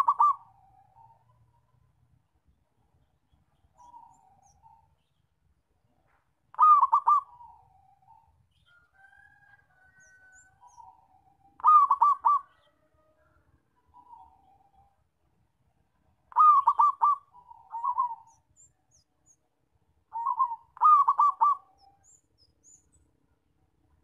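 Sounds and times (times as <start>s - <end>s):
dove cooing and trilling: 0.0s - 1.5s, 3.8s - 4.8s, 6.5s - 8.3s, 10.0s - 12.9s, 13.9s - 14.9s, 16.3s - 18.6s, 20.1s - 22.2s.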